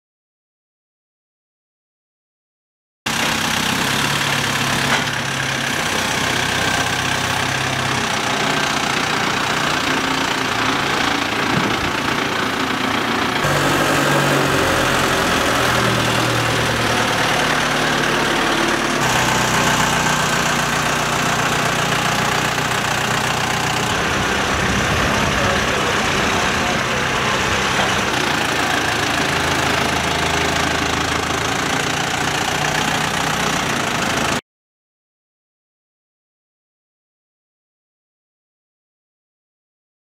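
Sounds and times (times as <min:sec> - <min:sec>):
forklift engine running: 0:03.1 - 0:34.4.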